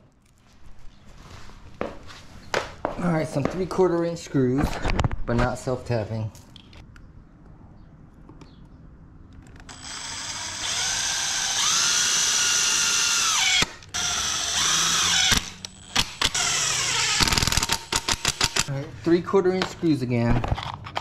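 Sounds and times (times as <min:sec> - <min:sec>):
drill motor whine: 0:09.7 - 0:17.6.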